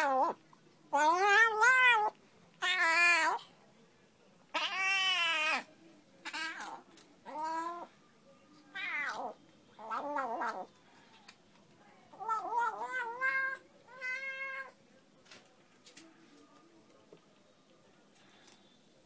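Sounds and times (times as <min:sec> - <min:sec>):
cat meowing: 0:00.0 - 0:03.5, 0:04.5 - 0:07.9, 0:08.7 - 0:10.7, 0:12.1 - 0:14.8.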